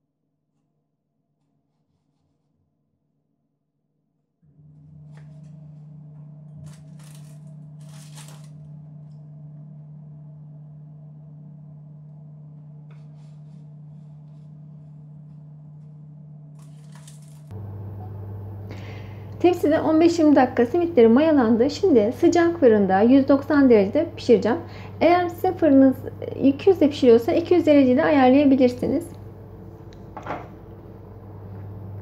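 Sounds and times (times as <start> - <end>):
low electrical hum: 4.4 - 32.0.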